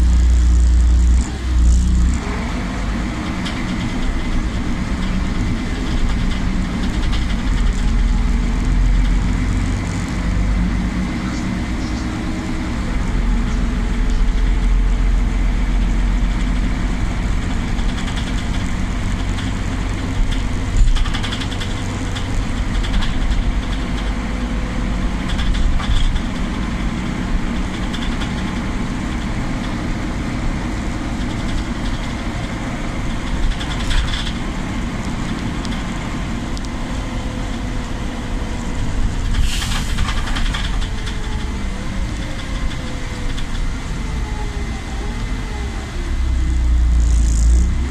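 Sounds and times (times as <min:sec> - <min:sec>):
bus engine rumbling: 0:00.0 - 0:47.9
short hiss: 0:39.4 - 0:40.1.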